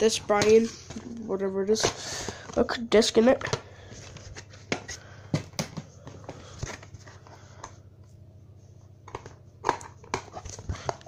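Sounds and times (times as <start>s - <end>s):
plastic cases clicking and knocking: 4.7s - 6.9s.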